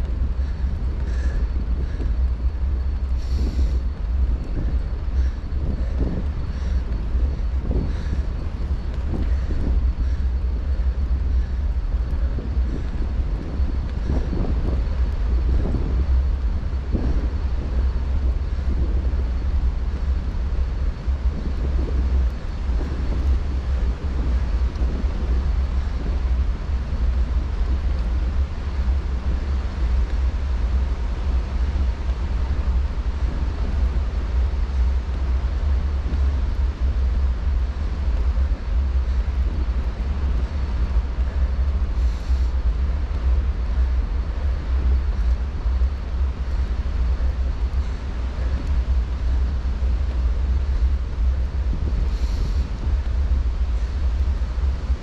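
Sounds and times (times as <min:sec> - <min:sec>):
wind buffeting microphone: 0:00.0 - 0:55.0
faint hiss: 0:13.9 - 0:55.0.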